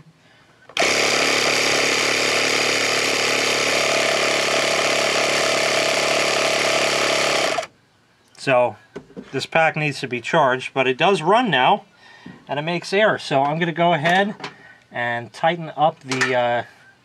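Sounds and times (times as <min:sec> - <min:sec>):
air compressor running: 0:00.7 - 0:07.7.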